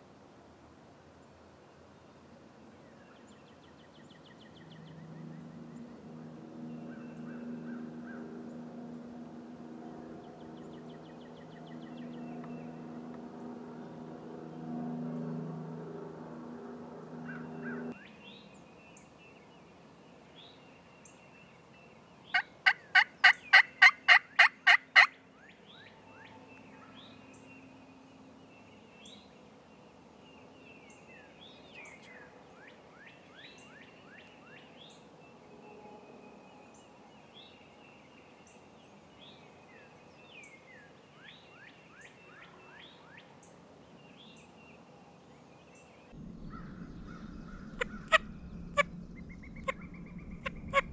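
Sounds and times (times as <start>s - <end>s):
turkey gobbling: 22.4s - 25.1s, 46.6s - 50.9s
high bird chirps: 46.4s - 50.9s.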